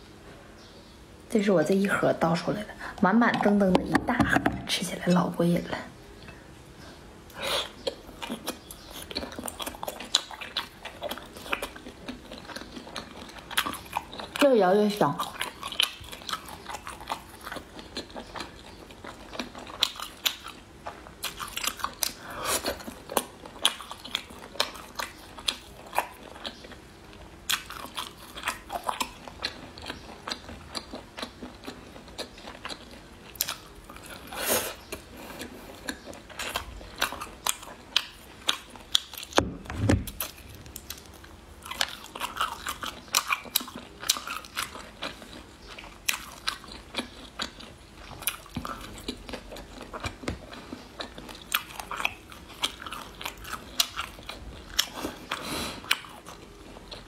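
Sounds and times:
person chewing food: 6.0s - 14.5s, 15.2s - 39.4s, 40.0s - 57.0s
dull low thump: 39.4s - 40.2s.

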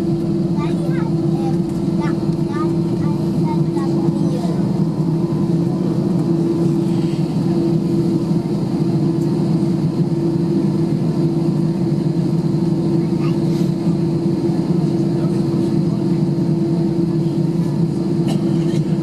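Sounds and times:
aircraft cabin engine drone: 0.0s - 19.0s.

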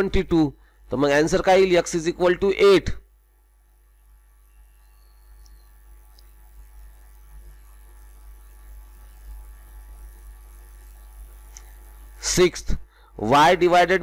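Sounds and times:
low electrical hum: 0.0s - 14.0s
faint ticks: 4.8s - 11.9s.

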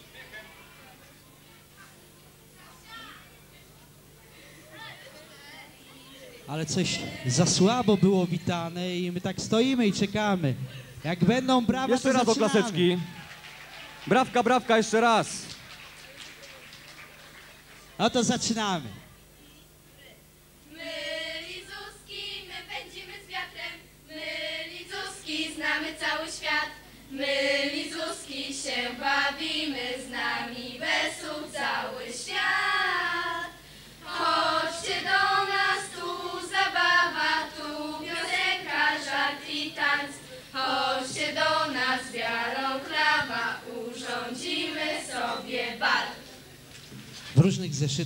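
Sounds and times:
girls singing unaccompanied: 20.7s - 46.3s.

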